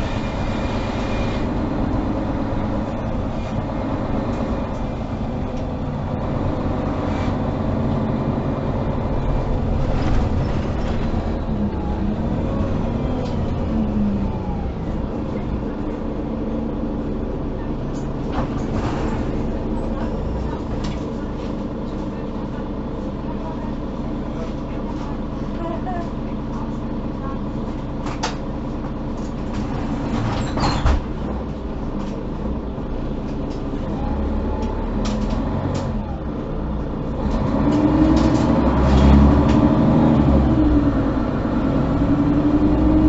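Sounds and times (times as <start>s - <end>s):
bus diesel engine running: 0.0s - 43.0s
bus knocks and rattles: 0.0s - 43.0s.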